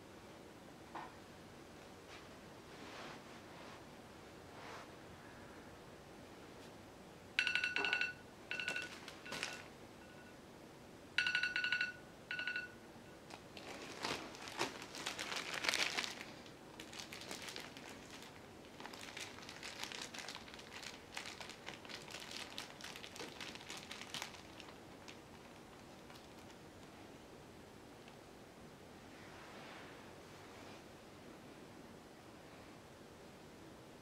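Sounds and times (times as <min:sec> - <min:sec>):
plastic bag crinkling: 0:08.5 - 0:09.7, 0:13.2 - 0:26.6.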